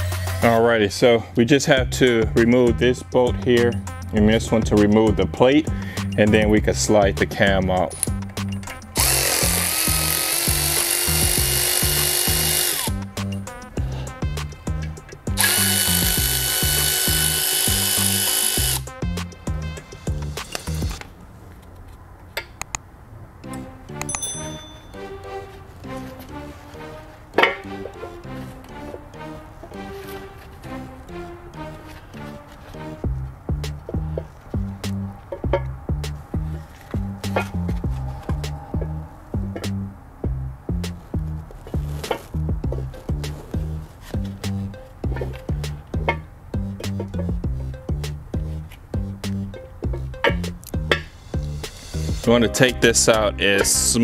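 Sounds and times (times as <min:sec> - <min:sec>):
held bass notes: 0:00.0 - 0:21.0, 0:23.4 - 0:54.0
background music with steady beat: 0:00.0 - 0:21.2, 0:23.3 - 0:54.0
power ratchet motor whine: 0:09.0 - 0:13.0, 0:15.3 - 0:18.9.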